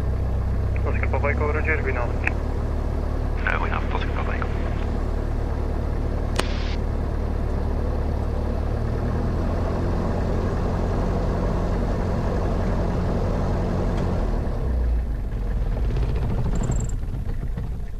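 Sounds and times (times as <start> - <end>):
light aircraft engine droning: 0.0 - 17.9
short hiss: 6.4 - 6.8.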